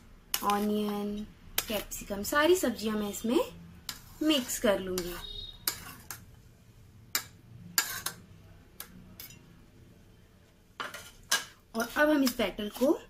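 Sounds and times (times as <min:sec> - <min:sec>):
vegetables scraped and mixed: 0:00.2 - 0:06.3, 0:07.7 - 0:08.3, 0:10.8 - 0:13.0
metal spoon clinking on steel bowl: 0:04.9 - 0:06.3, 0:08.8 - 0:09.5.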